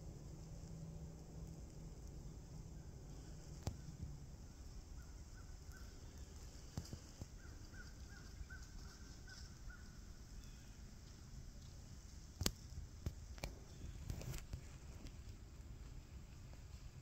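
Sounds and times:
faint insects: 0.0 - 17.0
distant bird calling: 2.6 - 10.9
faint clicks: 3.1 - 4.1, 5.6 - 16.6.

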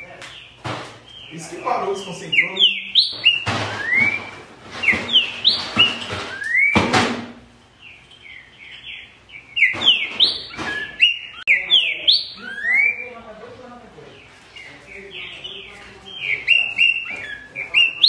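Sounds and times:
bird singing whistled phrases: 2.0 - 6.8, 8.3 - 13.2, 14.6 - 18.0.

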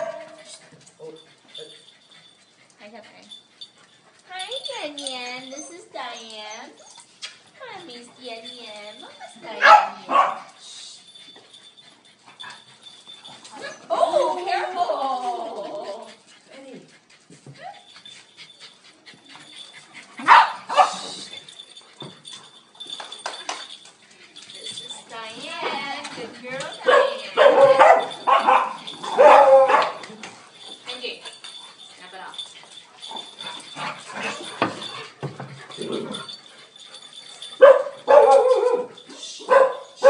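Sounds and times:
dog barking: 0.0 - 0.4, 9.6 - 10.5, 20.2 - 21.0, 26.9 - 30.0, 37.6 - 40.0
dogs playing rough: 11.1 - 39.2.

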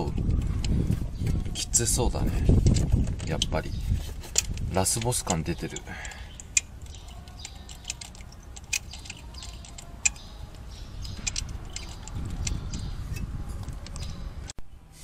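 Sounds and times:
rustle of hands and tool: 2.3 - 15.0
ratcheting wrench clicking: 4.3 - 14.2
metal ticks: 4.4 - 12.9.

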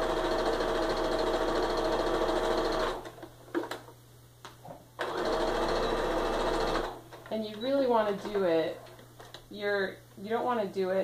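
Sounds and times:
sewing machine stitching: 0.0 - 3.1, 5.0 - 7.0.

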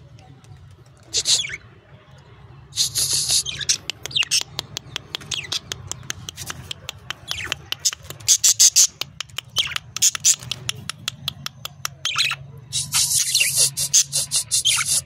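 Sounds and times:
budgerigars squawking and chattering: 1.2 - 1.6, 2.8 - 10.8, 11.9 - 15.0
shrill bird calls: 12.1 - 15.0.

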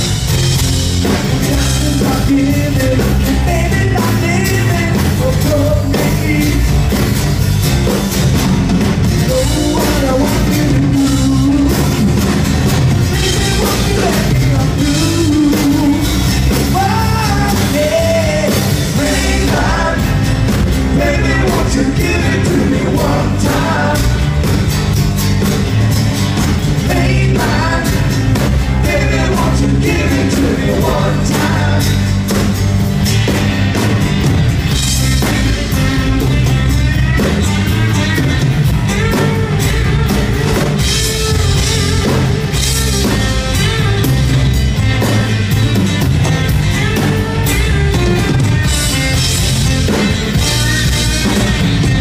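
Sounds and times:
acoustic guitars strumming: 0.0 - 52.0
bass guitar: 0.0 - 52.0
drum kit: 0.0 - 52.0
lead singer singing: 1.0 - 7.1, 9.2 - 12.2, 13.1 - 24.6, 26.8 - 32.2.

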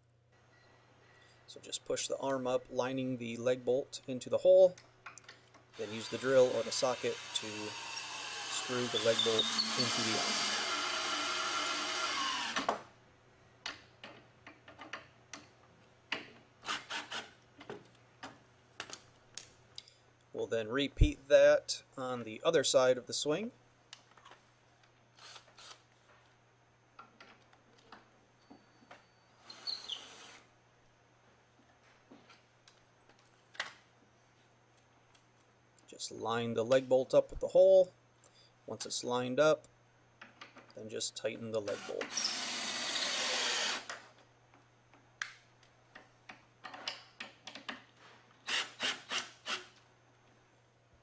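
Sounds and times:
wooden parts knocking and clicking: 45.9 - 47.9.

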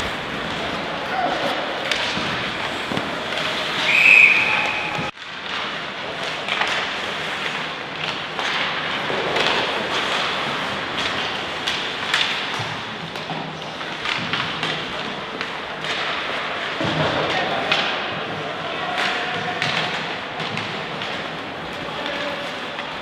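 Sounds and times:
faint players' voices: 0.0 - 5.1
venue noise: 0.0 - 23.0.

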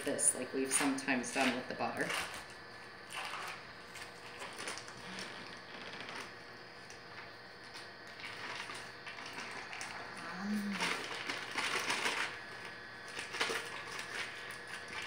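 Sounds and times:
foil wrapper crinkling: 2.0 - 15.0.

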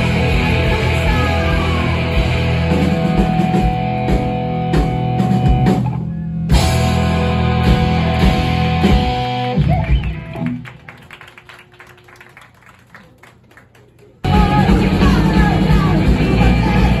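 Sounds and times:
rock band playing: 0.0 - 11.0, 14.2 - 17.0
audience clapping: 8.8 - 14.3.

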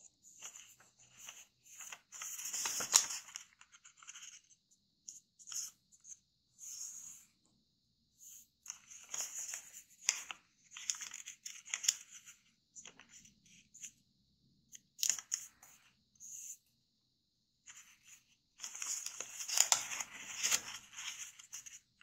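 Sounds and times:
paper rustling and crackling: 0.4 - 4.3, 18.6 - 21.8.

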